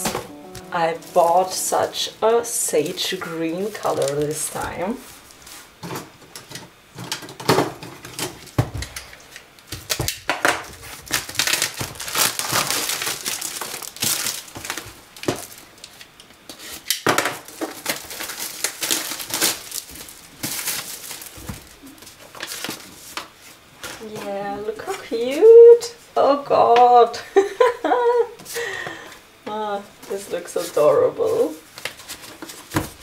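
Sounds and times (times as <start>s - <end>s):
plastic wrapping crinkling: 2.8s - 5.5s, 9.3s - 24.1s, 30.1s - 33.0s.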